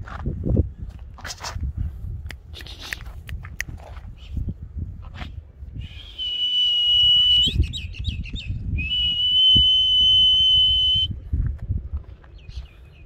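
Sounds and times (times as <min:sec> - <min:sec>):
person whistling: 0:05.8 - 0:07.7, 0:08.8 - 0:11.1.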